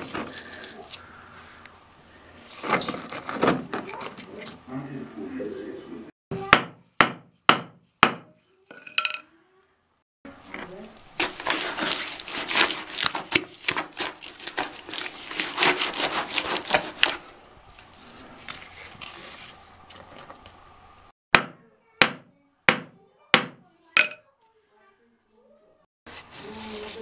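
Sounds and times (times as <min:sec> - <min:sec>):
hammer striking stone: 0:06.5 - 0:08.3, 0:21.4 - 0:24.2.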